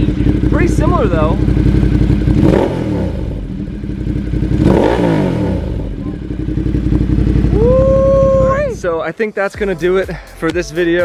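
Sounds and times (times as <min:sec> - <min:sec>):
motorcycles idling: 0:00.0 - 0:11.0.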